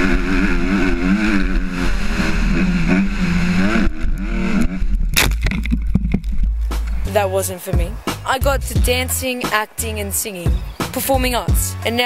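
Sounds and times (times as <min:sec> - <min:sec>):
dirt bike engine revving: 0:00.0 - 0:05.2.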